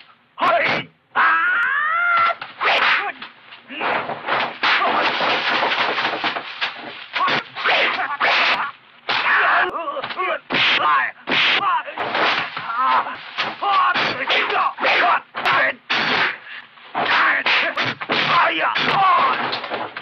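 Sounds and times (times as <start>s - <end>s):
fighters shouting and grunting: 0.4s - 5.2s, 7.1s - 20.0s
punch and kick impacts: 10.5s - 16.4s, 17.0s - 20.0s.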